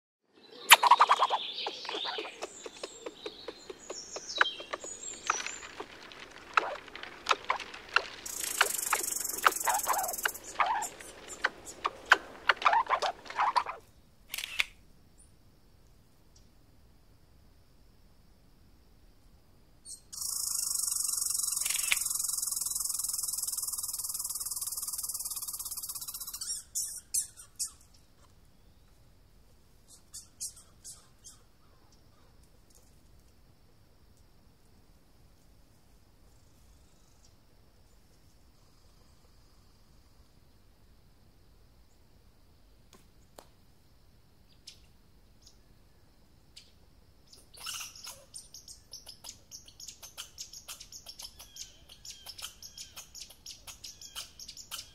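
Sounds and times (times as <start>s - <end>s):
small birds chirping: 0.4s - 15.3s, 19.8s - 29.1s, 29.8s - 32.8s, 46.5s - 54.9s
squirrel chewing and gnawing: 2.0s - 13.7s
sharp click: 14.3s - 14.8s.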